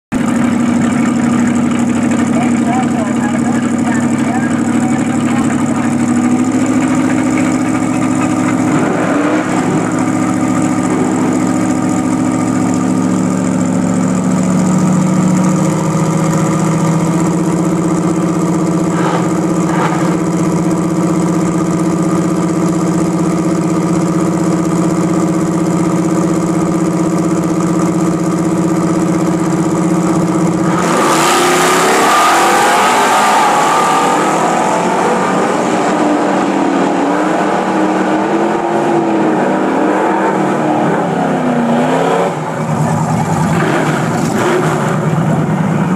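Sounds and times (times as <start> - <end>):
car engine idling: 0.1 - 45.9
car launching at full throttle: 18.9 - 20.3, 30.6 - 45.5.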